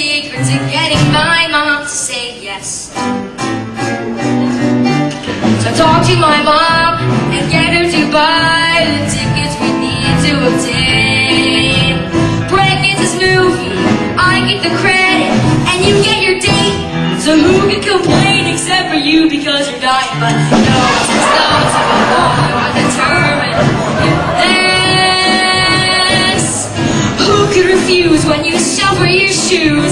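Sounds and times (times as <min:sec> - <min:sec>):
instrumental accompaniment: 0:00.0 - 0:29.9
young voices singing: 0:20.2 - 0:29.9.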